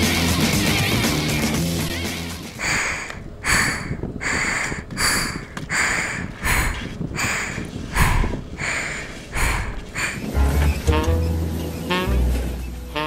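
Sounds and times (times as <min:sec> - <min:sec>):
person panting heavily: 0:02.5 - 0:10.7.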